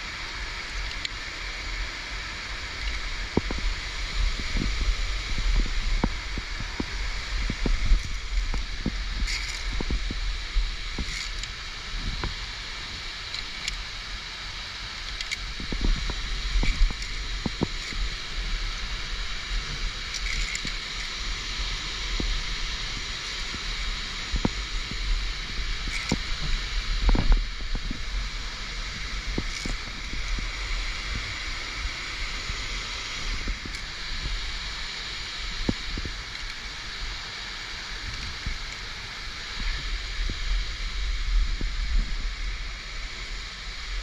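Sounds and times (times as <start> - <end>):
wind rumble on microphone: 0.0 - 44.0
carabiners clicking on cable: 9.2 - 9.8, 13.3 - 13.8, 15.0 - 15.5, 20.1 - 21.1.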